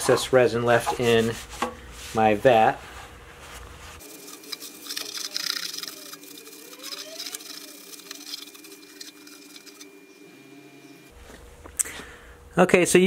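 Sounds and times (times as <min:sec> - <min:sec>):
paper towel wiping plastic vat: 0:00.7 - 0:09.8.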